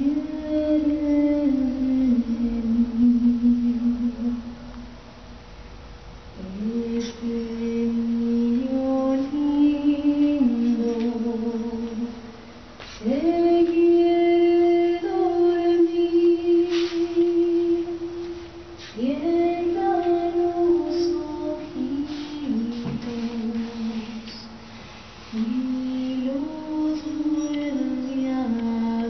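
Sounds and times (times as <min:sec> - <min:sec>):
woman singing slow melody: 0:00.0 - 0:05.0, 0:06.4 - 0:29.0.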